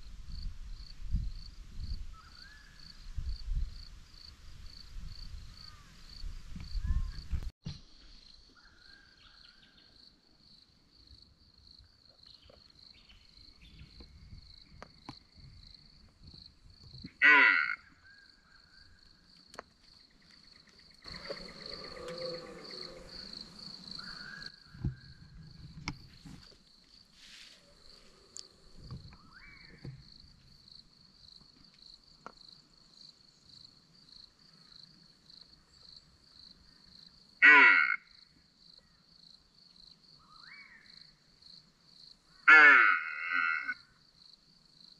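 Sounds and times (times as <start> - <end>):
insects trilling: 11.7 - 44.9
faint rustling: 25.0 - 29.2.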